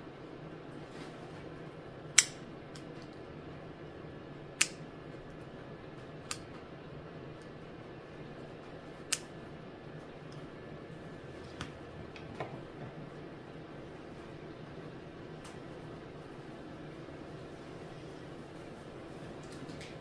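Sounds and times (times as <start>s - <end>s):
nail clippers snapping: 2.2s - 3.1s, 4.6s - 4.8s, 6.3s - 6.5s, 9.1s - 9.3s.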